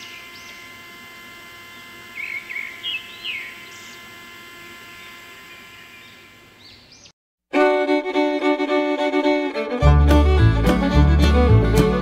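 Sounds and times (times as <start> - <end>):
small birds chirping: 0.0 - 0.9, 1.6 - 4.2, 4.9 - 7.2
steady electric hum: 0.0 - 7.1.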